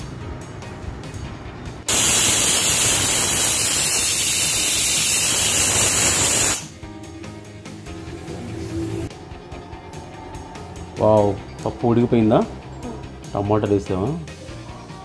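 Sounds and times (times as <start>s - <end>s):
pressure cooker steam hiss: 1.9s - 6.7s.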